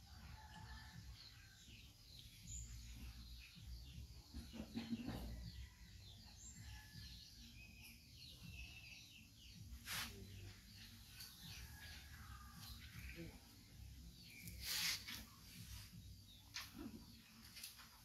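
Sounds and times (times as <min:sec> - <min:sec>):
small birds chirping: 0:00.0 - 0:18.0
brief hiss: 0:09.8 - 0:10.2, 0:14.5 - 0:15.3.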